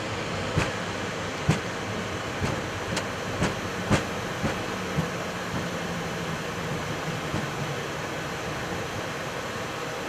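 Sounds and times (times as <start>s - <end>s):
aircraft rolling rumble and hiss: 0.0s - 10.0s
nose wheel thumps: 2.4s - 5.8s.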